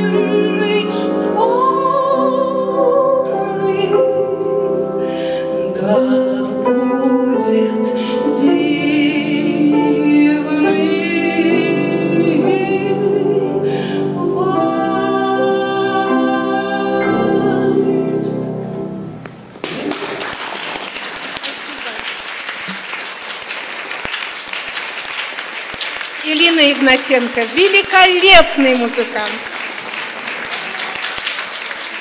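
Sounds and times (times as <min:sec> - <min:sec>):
woman singing classical style: 0:00.0 - 0:18.6
grand piano accompaniment: 0:00.0 - 0:32.0.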